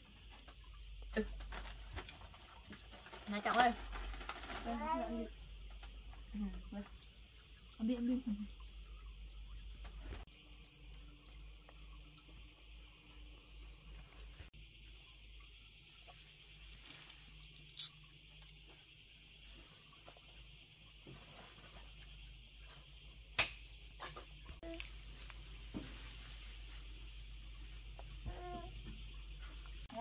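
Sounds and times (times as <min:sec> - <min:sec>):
insects chorus: 0:00.0 - 0:30.0
sharp click: 0:23.4 - 0:23.6.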